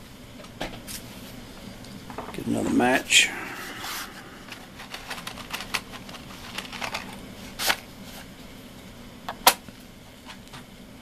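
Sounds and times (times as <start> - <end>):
matchbox clicks and rustles: 4.5 - 7.8.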